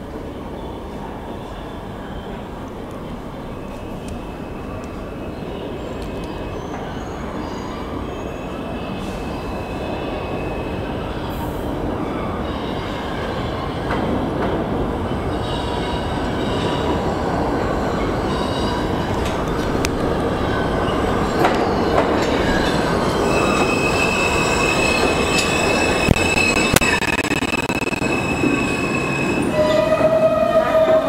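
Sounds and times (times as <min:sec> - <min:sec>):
subway train rumble: 0:00.0 - 0:31.0
wheels squealing on track: 0:20.6 - 0:31.0.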